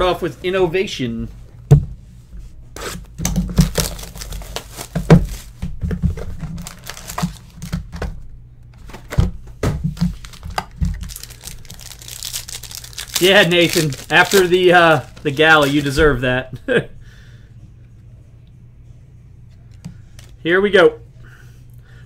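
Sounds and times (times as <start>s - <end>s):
foil pack crinkling: 3.4s - 5.6s, 6.2s - 8.0s, 9.9s - 16.0s
foil pack tearing: 3.5s - 5.6s, 6.4s - 7.8s, 10.0s - 16.0s.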